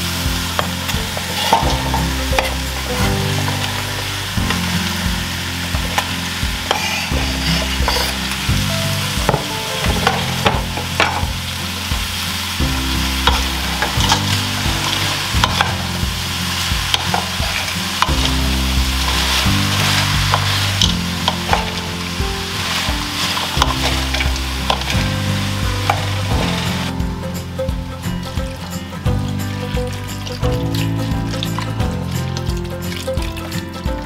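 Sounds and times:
food sizzling in a pot: 0.0s - 33.6s
background music: 0.0s - 34.0s
wooden spoon scraping a pot: 5.9s - 8.4s.

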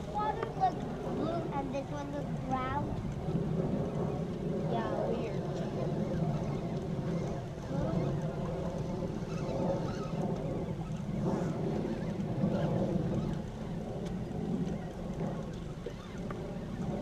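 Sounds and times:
water moving around boat hull: 0.0s - 17.0s
wind on microphone: 0.0s - 17.0s.

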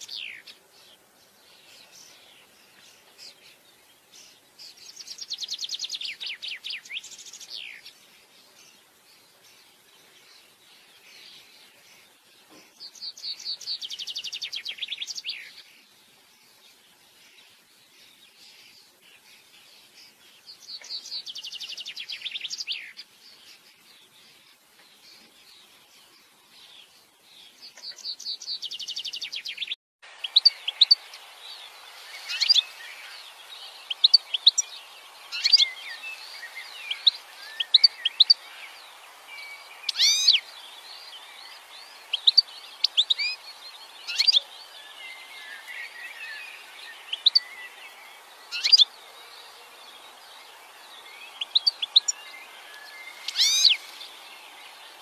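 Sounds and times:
goldfinch twittering: 27.9s - 47.8s, 48.5s - 48.9s, 51.2s - 54.2s.

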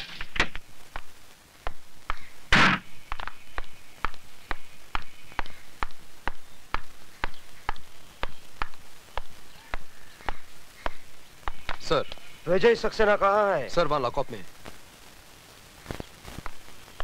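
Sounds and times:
loud thump: 2.5s - 2.9s.

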